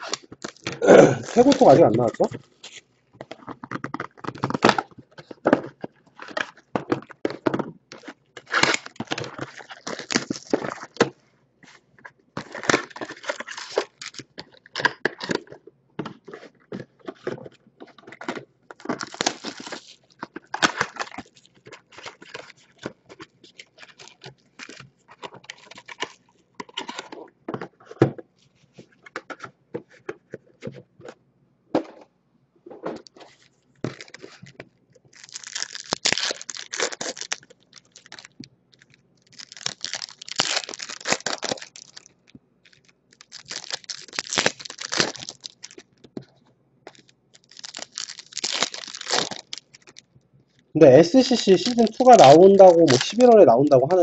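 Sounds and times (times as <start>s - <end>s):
cardboard tearing: 0.0s - 2.2s, 8.4s - 11.0s, 18.8s - 22.8s, 35.2s - 38.4s, 39.3s - 42.1s, 42.7s - 45.8s, 46.9s - 50.0s, 51.3s - 54.0s
foil packs crinkling: 0.0s - 11.1s, 12.4s - 15.6s, 16.3s - 27.6s, 33.2s - 50.1s, 50.9s - 54.0s.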